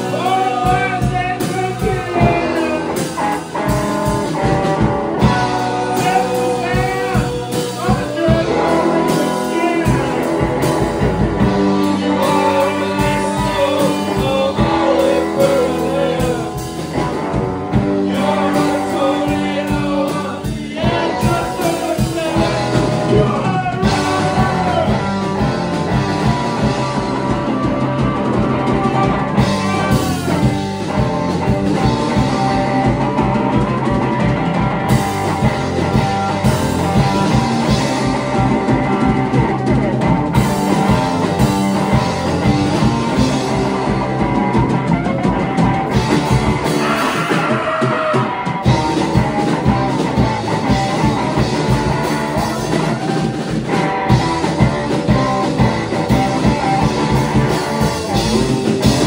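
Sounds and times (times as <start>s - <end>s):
person singing: 0.0s - 31.2s, 45.9s - 55.4s
bass guitar: 0.0s - 59.0s
drums: 0.0s - 59.0s
electric guitar: 0.0s - 59.0s.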